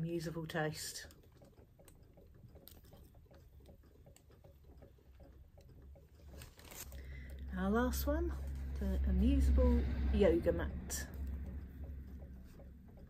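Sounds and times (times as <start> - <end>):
plush toy ticks and rustles: 0.0 - 9.5.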